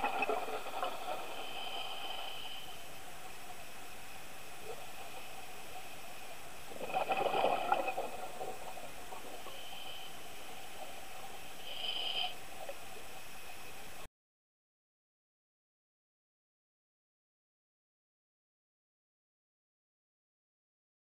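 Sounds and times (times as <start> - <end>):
underwater hiss: 0.0 - 13.9
scuba regulator exhaust bubbles: 6.7 - 9.6.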